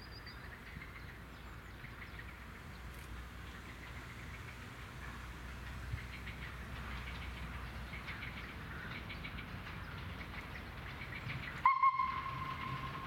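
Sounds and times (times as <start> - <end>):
small birds chirping: 0.0 - 12.8
train whistle: 11.6 - 13.0.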